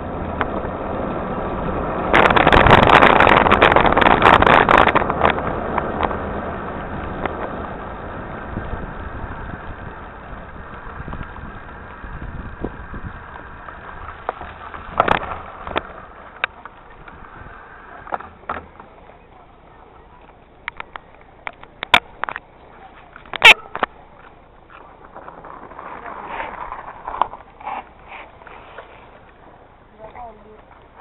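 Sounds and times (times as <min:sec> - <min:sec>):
bike tyres on gravel: 0:00.0 - 0:31.0
bike knocks and rattles: 0:09.7 - 0:17.3, 0:18.0 - 0:19.0.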